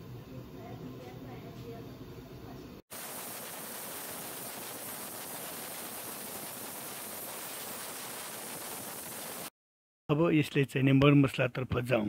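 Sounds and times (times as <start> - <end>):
pressure cooker steam hissing: 2.9 - 9.5.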